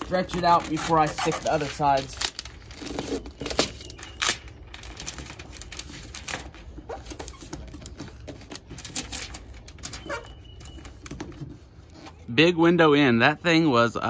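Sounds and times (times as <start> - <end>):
tape crackling and clicking: 0.0 - 12.2.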